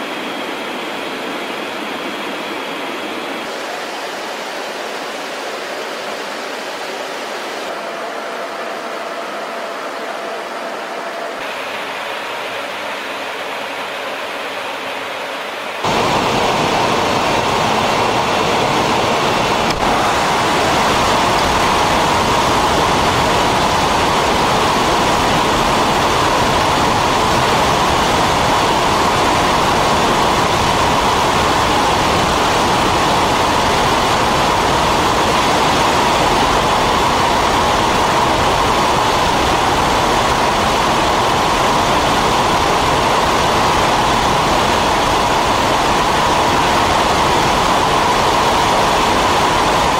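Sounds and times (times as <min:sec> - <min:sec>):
aircraft engine noise: 0:00.0 - 0:49.9
rush of airflow: 0:00.0 - 0:49.9.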